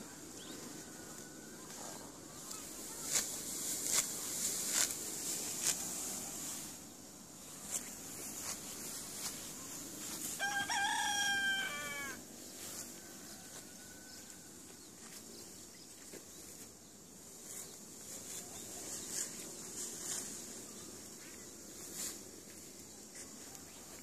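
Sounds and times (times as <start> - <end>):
rooster crowing: 10.3 - 12.2.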